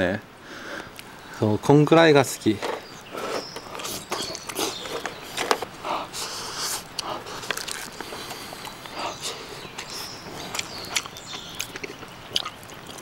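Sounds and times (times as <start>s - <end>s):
person chewing and slurping: 3.3s - 13.0s.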